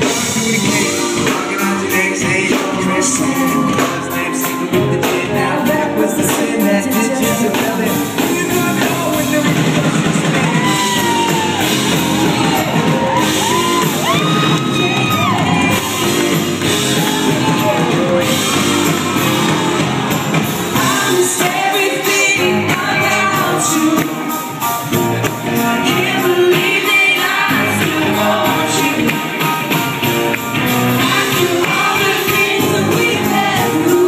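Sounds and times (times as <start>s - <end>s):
person singing: 0.0s - 30.2s, 31.0s - 34.0s
live pop band playing: 0.0s - 34.0s
crowd whooping and shouting: 2.8s - 5.0s, 9.3s - 29.1s.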